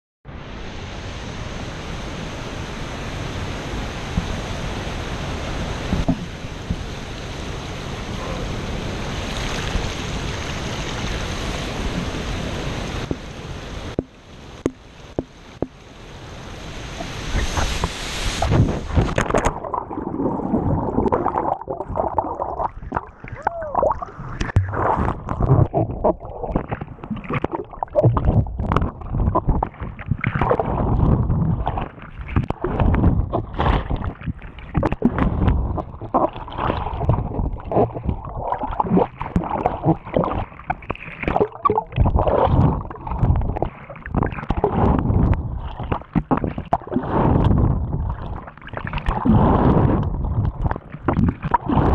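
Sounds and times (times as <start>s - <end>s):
underwater water churning: 5.8s - 6.9s, 16.8s - 51.9s
underwater knocks: 5.9s - 6.8s, 13.9s - 15.8s, 23.8s - 48.2s.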